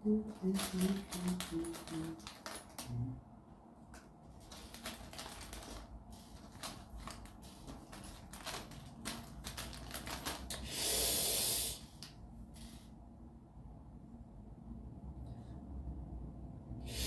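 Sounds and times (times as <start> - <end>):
plastic bag crinkling: 0.1 - 3.2, 3.9 - 10.7.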